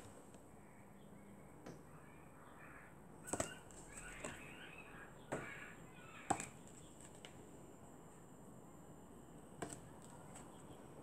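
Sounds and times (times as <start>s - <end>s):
flashcards tapping and clicking: 3.3s - 4.6s, 6.3s - 7.4s, 9.6s - 10.7s.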